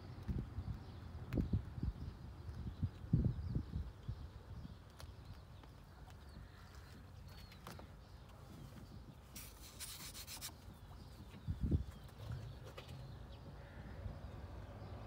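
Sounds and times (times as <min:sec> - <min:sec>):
scratchy rustle: 0:08.4 - 0:10.9.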